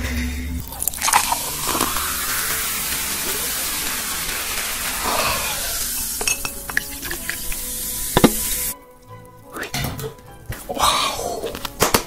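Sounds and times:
bubbles popping clicks: 0.6s - 5.2s, 5.8s - 8.7s
cola pouring into glass: 0.6s - 9.4s
carbonation fizzing: 0.6s - 12.0s.

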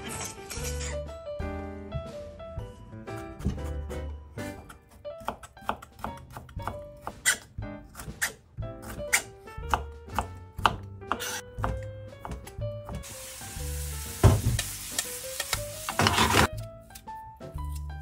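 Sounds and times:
background music: 0.0s - 18.0s
knife chopping on cutting board: 3.1s - 13.1s, 15.9s - 16.5s
food sizzling in a frying pan: 13.0s - 16.5s.

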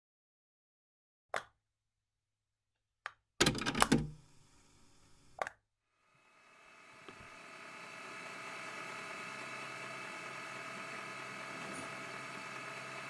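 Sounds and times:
cassette deck clicks and clacks: 3.4s - 4.2s.

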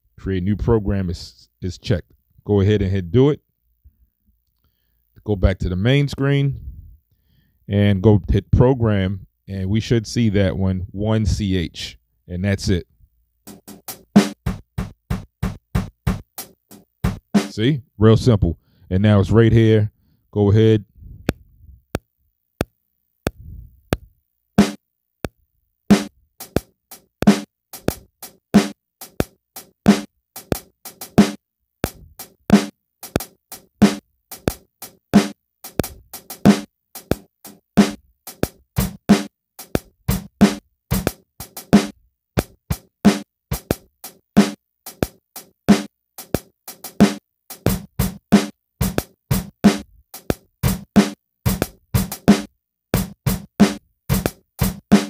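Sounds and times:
sampled drum-like hits: 13.5s - 17.5s, 25.9s - 55.0s.

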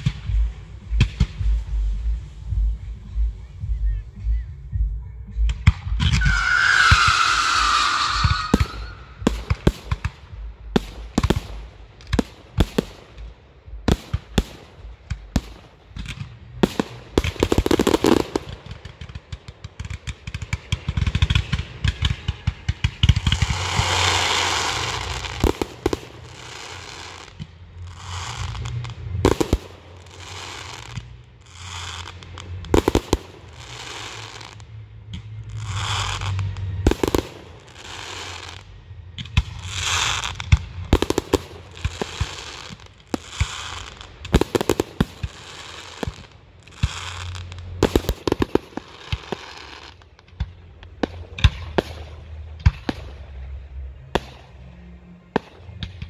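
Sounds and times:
fireworks bangs: 0.0s - 4.3s, 5.3s - 56.0s
fireworks hissing crackle: 0.0s - 4.7s, 5.4s - 56.0s.

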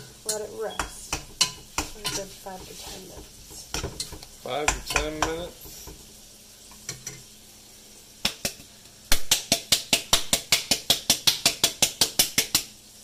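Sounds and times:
rapid sharp taps on a pot: 0.3s - 2.2s, 3.2s - 6.0s, 8.2s - 12.7s
knocks on cookware: 3.2s - 6.0s, 8.3s - 12.6s.

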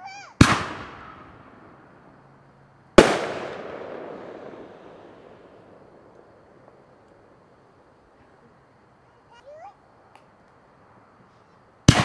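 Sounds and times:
firework bang echoing: 0.4s - 2.0s, 3.0s - 7.4s.

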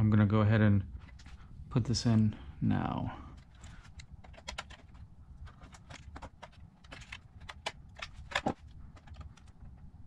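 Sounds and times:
wire and tool handling: 3.4s - 9.8s.

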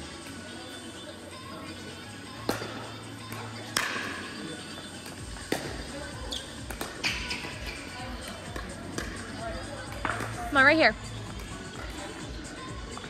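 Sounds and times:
background music: 0.0s - 13.0s
plastic ball popping off paddles: 5.4s - 5.8s, 6.6s - 7.8s.

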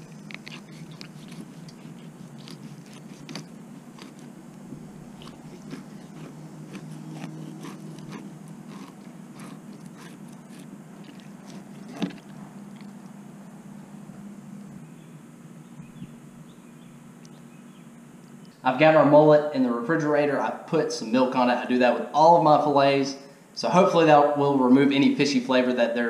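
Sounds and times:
knife crunching through fish bones: 0.0s - 13.0s
steady low hum: 0.0s - 26.0s.

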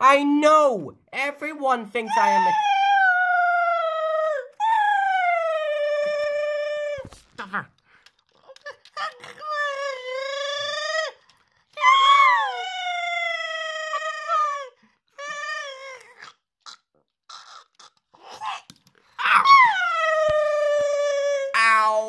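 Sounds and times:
high-pitched wailing cries: 2.1s - 7.1s, 8.5s - 16.3s, 19.2s - 21.8s.

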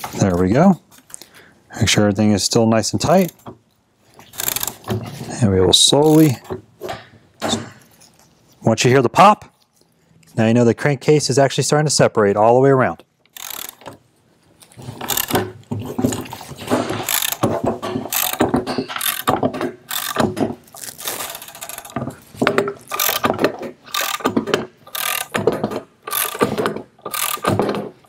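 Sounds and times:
socket ratchet clicking: 4.3s - 4.8s, 13.3s - 13.9s, 17.0s - 17.4s, 18.1s - 19.3s, 19.9s - 20.2s, 22.9s - 23.3s, 23.9s - 24.3s, 24.9s - 25.4s, 26.1s - 27.6s.

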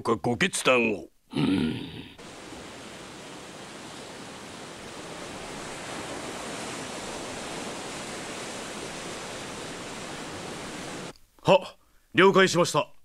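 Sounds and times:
sea rushing: 2.2s - 11.1s.

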